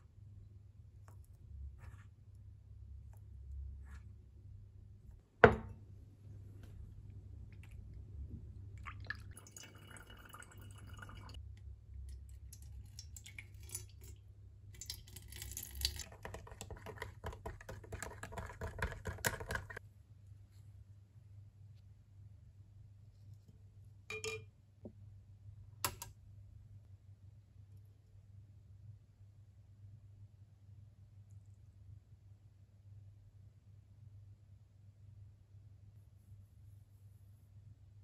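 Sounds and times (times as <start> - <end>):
liquid trickling: 8.8 - 11.4, 12.5 - 14.2
glass clinks: 24.1 - 24.5.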